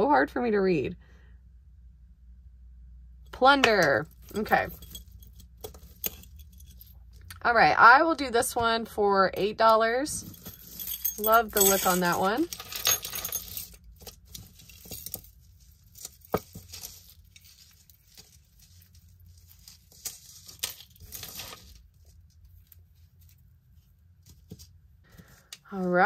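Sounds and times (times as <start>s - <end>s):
beaded strands rustling on cloth: 10.2s - 26.0s.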